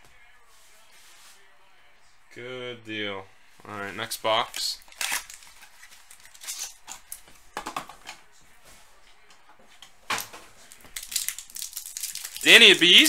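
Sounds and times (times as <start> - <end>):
foil pack rustling: 4.9 - 6.8, 10.6 - 13.0.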